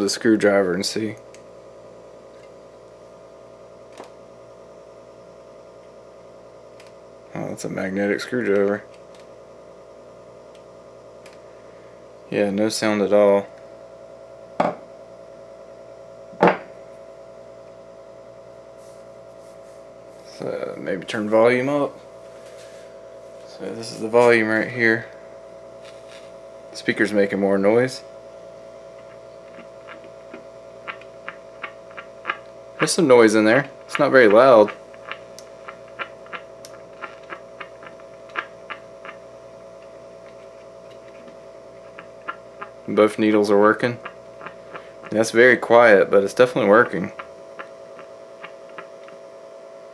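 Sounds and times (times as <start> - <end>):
amplifier hum: 0.0 - 49.9
electrical buzz from loudspeaker: 0.0 - 49.9
sharp clicks: 6.8 - 7.0
scratchy needle clicks: 29.0 - 33.1, 33.8 - 43.0, 43.8 - 45.4, 46.4 - 49.2.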